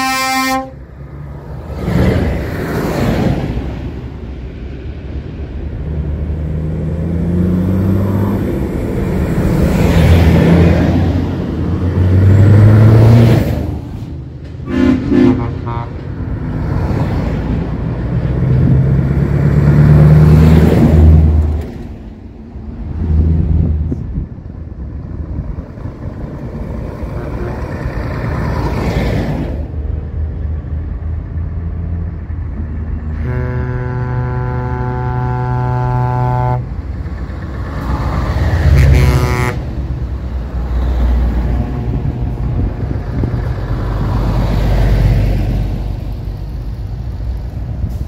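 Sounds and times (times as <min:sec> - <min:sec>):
truck air horn blast: 0:00.0 - 0:00.8, 0:14.6 - 0:16.1, 0:27.1 - 0:27.8, 0:33.1 - 0:36.8, 0:38.6 - 0:39.7
heavy trucks driving past: 0:00.0 - 0:48.0.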